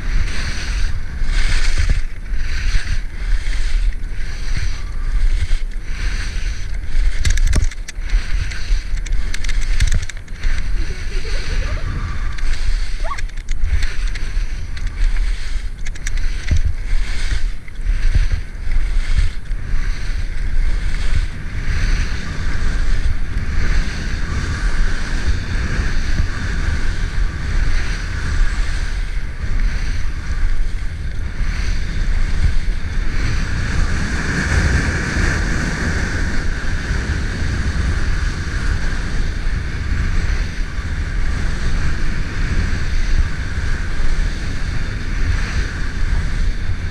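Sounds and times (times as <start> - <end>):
skis scraping on snow: 0.0 - 46.9
wind buffeting microphone: 0.0 - 46.9.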